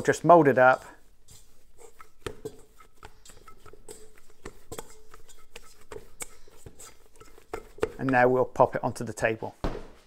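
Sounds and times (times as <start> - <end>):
dough knocking against metal bowl: 1.8 - 8.6.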